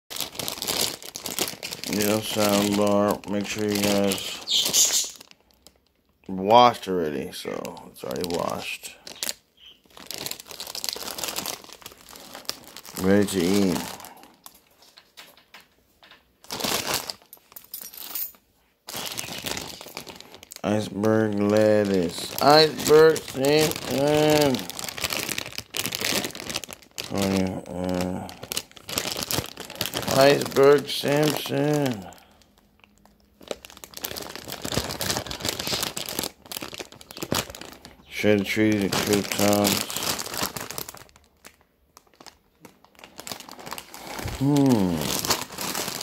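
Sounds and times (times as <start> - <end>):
plastic bag crinkling: 0.1 - 46.0.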